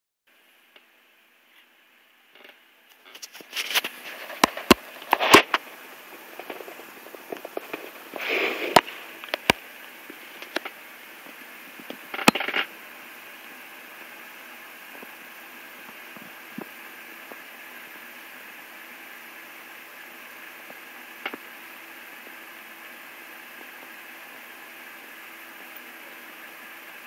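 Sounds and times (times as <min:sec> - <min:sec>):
cat sniffing: 0:07.8 - 0:09.2.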